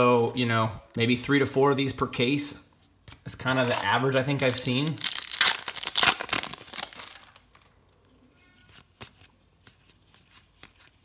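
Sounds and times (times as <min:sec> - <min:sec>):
foil pack crinkling: 0:03.6 - 0:07.7.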